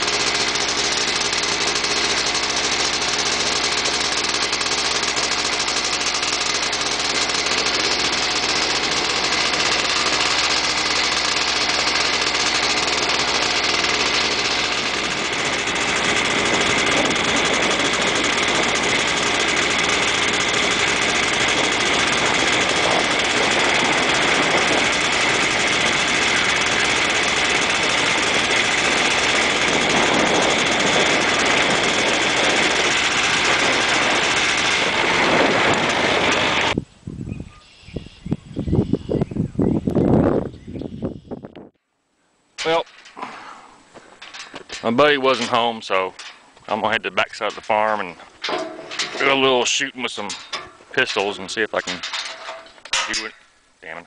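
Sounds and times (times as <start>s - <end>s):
quad engine running: 0.0s - 36.9s, 42.6s - 53.4s.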